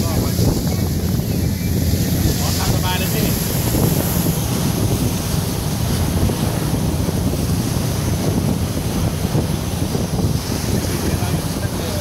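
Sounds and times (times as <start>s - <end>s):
boat wake churning: 0.0s - 12.0s
wind buffeting microphone: 0.0s - 12.0s.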